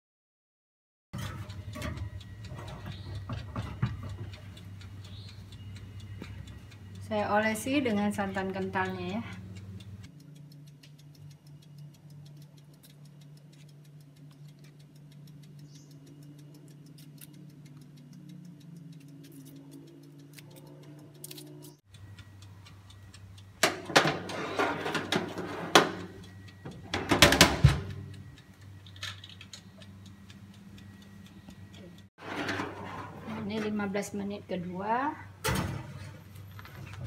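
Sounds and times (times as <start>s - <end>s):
faint ticking: 1.2s - 23.9s, 26.0s - 26.9s, 27.8s - 32.1s
metal tin and oven rack clattering: 23.6s - 26.2s, 32.2s - 34.1s
oven door shutting: 23.6s - 28.1s, 32.2s - 33.9s, 35.4s - 36.2s.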